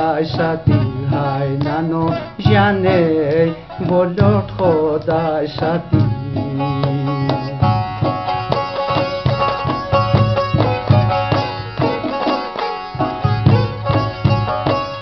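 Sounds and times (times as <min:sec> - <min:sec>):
hand drum beat: 0:00.0 - 0:15.0
plucked string instrument: 0:00.0 - 0:15.0.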